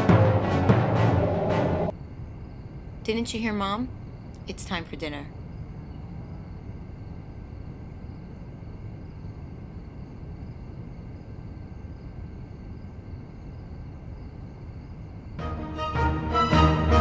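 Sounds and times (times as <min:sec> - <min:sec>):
low rumble of room tone: 0:00.0 - 0:15.6.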